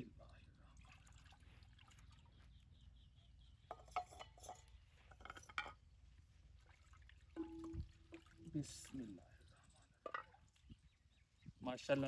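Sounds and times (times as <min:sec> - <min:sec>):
drinking glasses clinking in water: 0:07.4 - 0:08.3.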